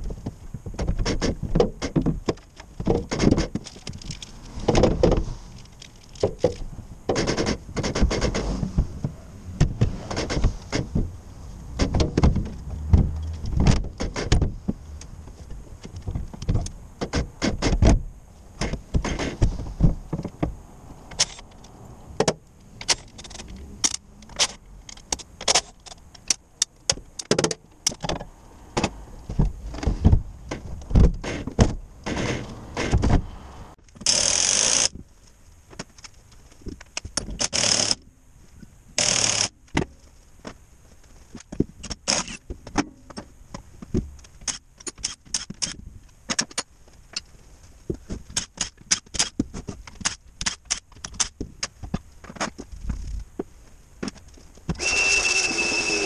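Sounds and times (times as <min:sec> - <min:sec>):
impact wrench spinning bolts: 0:34.0 - 0:34.9, 0:37.4 - 0:38.0, 0:39.0 - 0:39.5.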